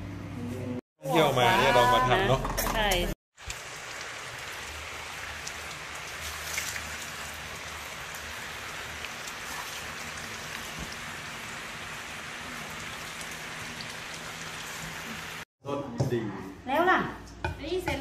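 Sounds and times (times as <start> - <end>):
rain hissing: 3.4 - 15.5.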